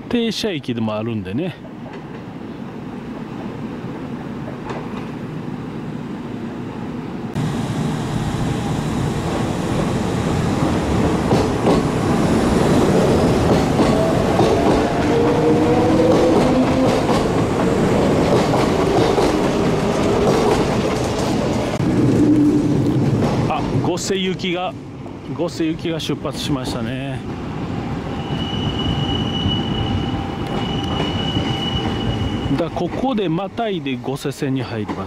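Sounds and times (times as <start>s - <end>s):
train wheels clacking over rail joints: 10.6s - 12.1s, 12.8s - 24.0s.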